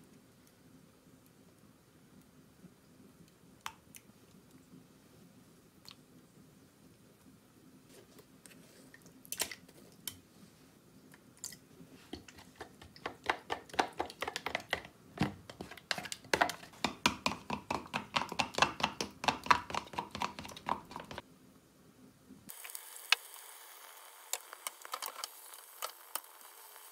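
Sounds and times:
chopsticks beating eggs in plastic cup: 12.1s - 21.2s.

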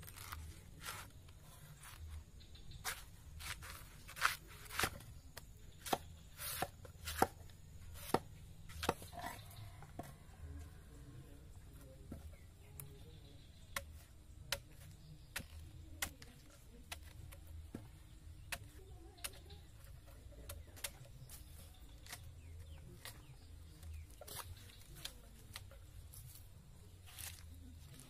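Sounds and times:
machete chopping on wooden block: 2.8s - 5.0s, 5.7s - 7.4s, 8.0s - 9.1s, 13.7s - 16.3s.

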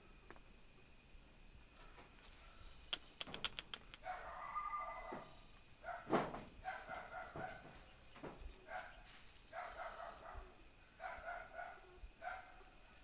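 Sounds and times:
thump: 6.0s - 8.5s.

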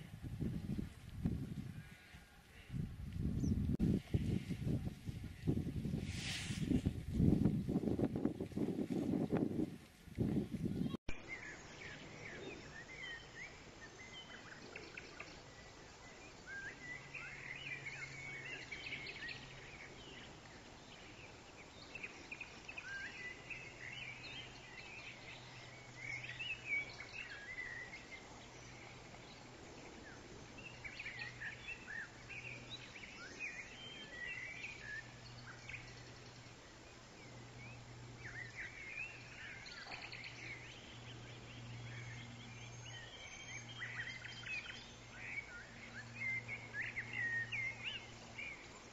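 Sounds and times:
songbirds chirping: 0.0s - 48.9s
steady outdoor hiss: 0.0s - 48.9s.

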